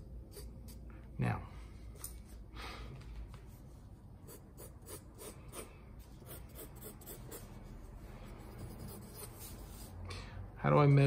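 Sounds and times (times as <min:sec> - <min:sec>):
pencil sketching on paper: 0:04.2 - 0:10.0.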